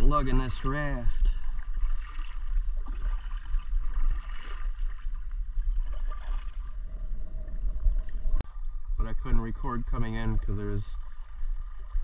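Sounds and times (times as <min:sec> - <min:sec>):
kayak paddle strokes in water: 0:00.0 - 0:08.5, 0:11.0 - 0:12.0
steady low rumble: 0:00.0 - 0:12.0
water lapping at hull: 0:00.0 - 0:12.0.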